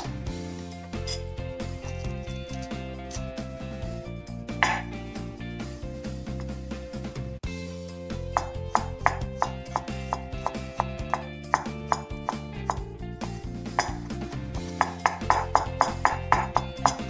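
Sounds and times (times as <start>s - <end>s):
background music: 0.0s - 17.0s
knife chopping on wooden board: 4.6s - 5.0s, 8.4s - 12.8s, 13.8s - 14.1s, 14.8s - 17.0s.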